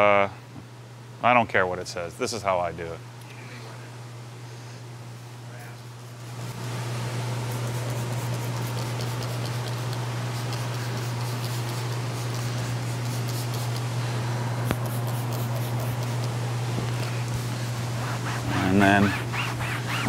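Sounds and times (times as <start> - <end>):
steady low hum: 0.0 - 20.0
scratchy fabric sounds: 18.0 - 20.0.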